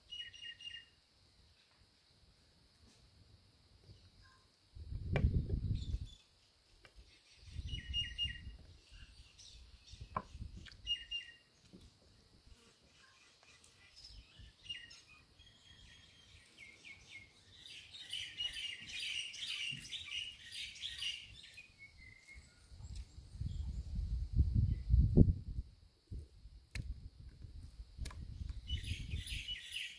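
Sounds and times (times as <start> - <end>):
small birds chirping: 0.0 - 1.8, 5.4 - 12.0, 12.6 - 25.0, 28.2 - 29.9.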